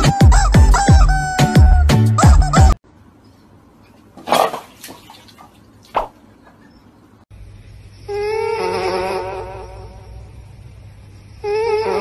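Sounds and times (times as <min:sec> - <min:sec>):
steady electrical hum: 0:02.9 - 0:12.0
buzzy wavering tone: 0:07.6 - 0:12.0.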